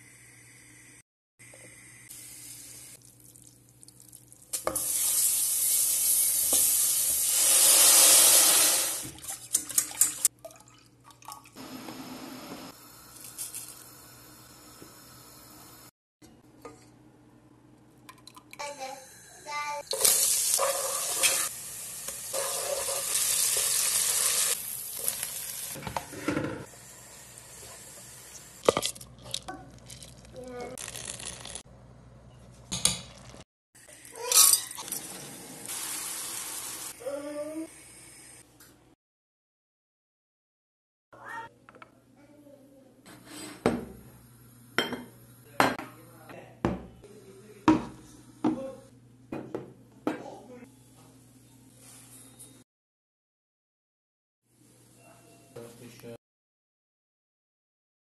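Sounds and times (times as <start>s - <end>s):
food sizzling in hot oil: 4.6s - 9.0s, 20.0s - 25.8s, 34.2s - 37.0s.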